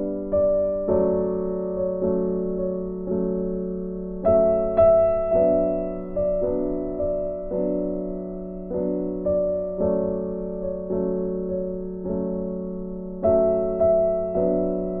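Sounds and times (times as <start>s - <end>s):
soft piano chords: 0.0s - 15.0s.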